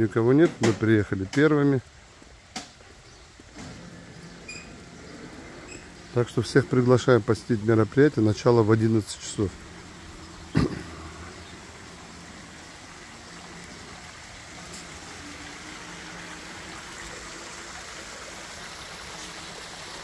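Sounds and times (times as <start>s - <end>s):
water splashing down stone fountain: 5.9s - 20.0s.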